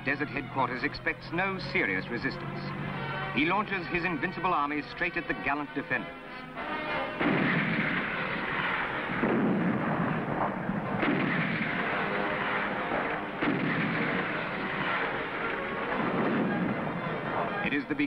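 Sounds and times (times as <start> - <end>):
heavy gun blasts with rumble: 7.2 - 17.7.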